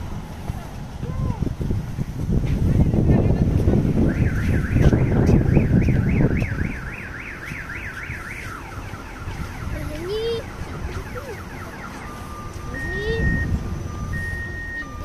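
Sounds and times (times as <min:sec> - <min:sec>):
warbling car alarm: 0:04.0 - 0:15.0.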